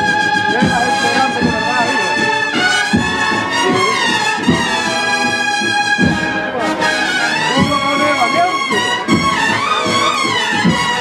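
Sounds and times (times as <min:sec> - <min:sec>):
brass band playing a march: 0:00.0 - 0:11.0.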